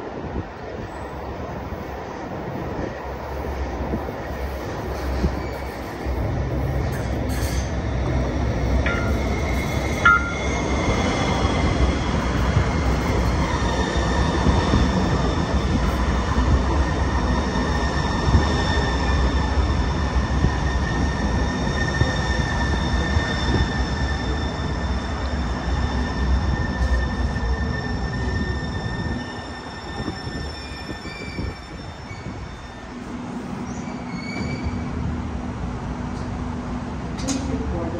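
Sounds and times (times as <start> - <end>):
train wheels rumbling on rail: 0.0 - 37.9
high wheel squeal: 20.7 - 32.9, 33.6 - 34.9.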